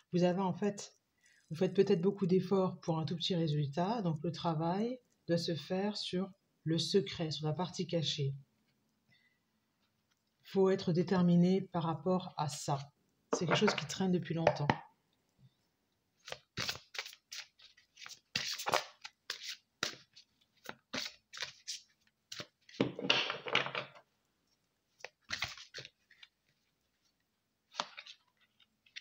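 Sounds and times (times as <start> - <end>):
cards shuffling: 16.2 - 23.9, 24.9 - 26.6, 27.7 - 29.0.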